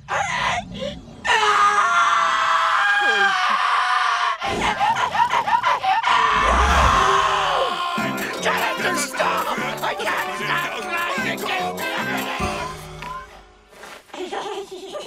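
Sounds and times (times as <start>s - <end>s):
cartoon character screaming: 6.2s - 8.2s.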